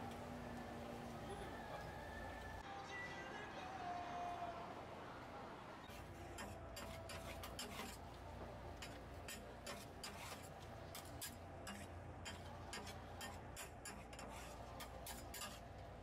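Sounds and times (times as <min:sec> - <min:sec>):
metal spatula scraping on griddle: 0:05.9 - 0:08.1, 0:08.8 - 0:15.8.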